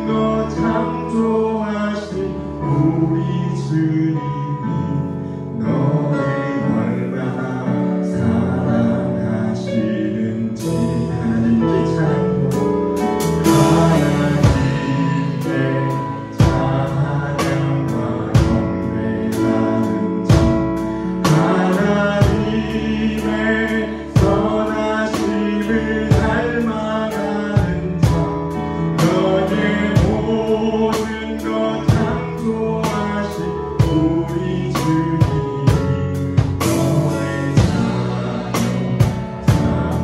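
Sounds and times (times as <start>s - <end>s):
gospel worship singing: 0.0s - 40.0s
drum kit playing: 12.3s - 40.0s.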